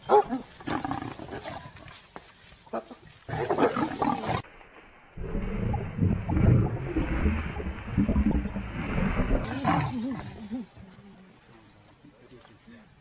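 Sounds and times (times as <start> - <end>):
animals snarling and growling: 0.4 - 1.8, 3.3 - 4.4, 5.2 - 10.8.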